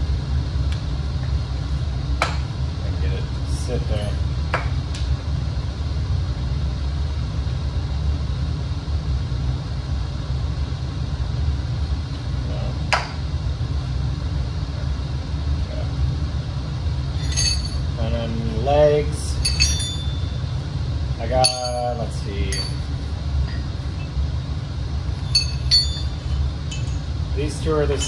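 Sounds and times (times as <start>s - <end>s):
low rumble: 16.2s - 28.0s
scrap metal clinks: 17.1s - 17.9s, 19.4s - 20.4s, 21.4s - 21.9s, 22.5s - 22.9s, 25.2s - 27.1s.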